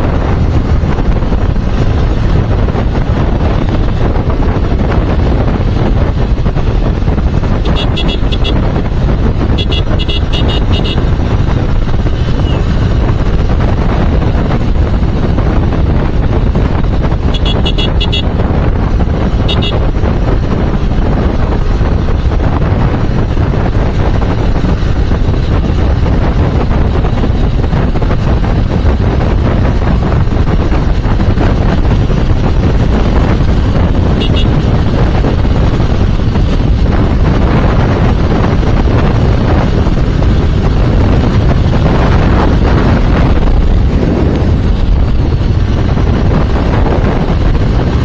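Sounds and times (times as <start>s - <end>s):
motorcycle engine and road rumble: 0.0s - 48.0s
wind buffeting microphone: 0.0s - 48.0s
vehicle horn beeping: 7.6s - 8.7s, 9.5s - 11.1s, 17.3s - 18.3s, 19.5s - 19.9s, 34.2s - 34.6s.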